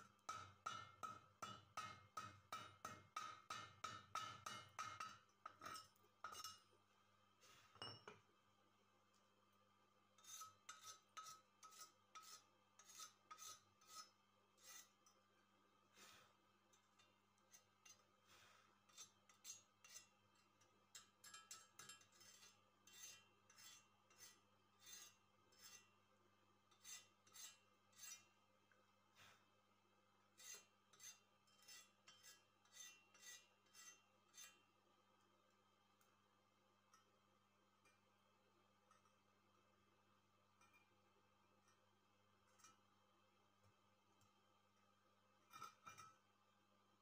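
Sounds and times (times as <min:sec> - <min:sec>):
metal scraping on weld: 0:10.2 - 0:15.0, 0:21.3 - 0:25.9, 0:26.8 - 0:28.3, 0:30.4 - 0:34.6, 0:45.5 - 0:46.1.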